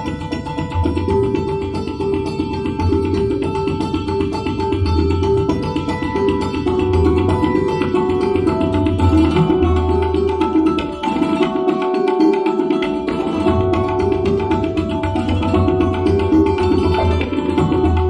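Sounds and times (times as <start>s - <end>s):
tabla: 0.0s - 18.0s.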